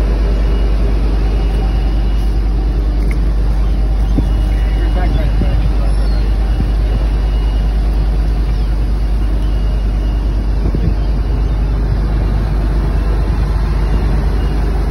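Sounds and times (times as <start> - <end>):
boat engine rumbling: 0.0 - 14.9.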